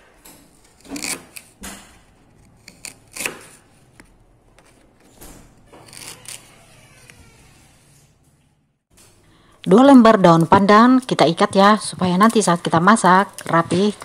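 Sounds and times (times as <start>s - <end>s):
knife slicing on cutting board: 0.8s - 1.5s, 2.6s - 3.6s.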